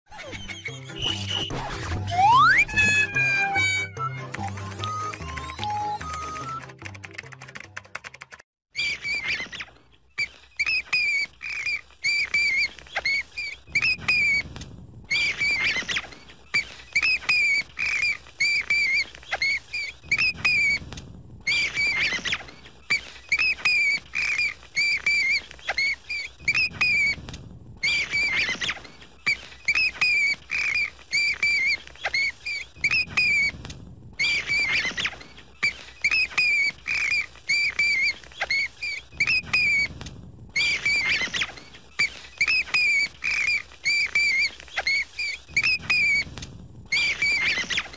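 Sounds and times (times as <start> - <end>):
bat squeaking: 0.1 - 4.2, 8.8 - 14.5, 15.1 - 20.9, 21.5 - 27.2, 27.8 - 33.6, 34.2 - 40.0, 40.6 - 46.3, 46.9 - 47.9.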